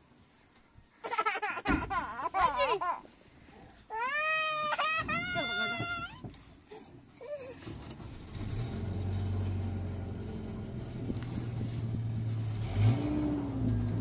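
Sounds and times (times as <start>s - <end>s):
truck engine running: 8.0s - 14.0s.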